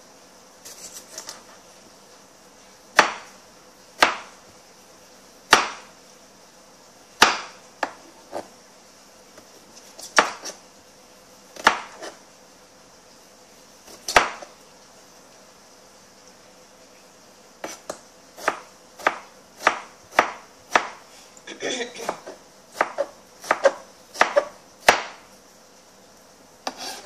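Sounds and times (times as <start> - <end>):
knife cutting tomatoes: 0.6 - 1.6, 7.2 - 8.5, 9.4 - 10.6, 11.6 - 12.2, 13.9 - 14.6, 17.6 - 21.0, 21.8 - 25.2, 26.6 - 27.0.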